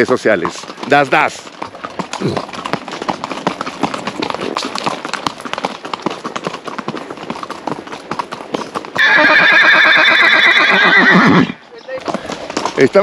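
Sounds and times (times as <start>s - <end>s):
hooves clip-clopping on dirt: 0.0s - 13.0s
horse whinnying: 9.0s - 12.3s.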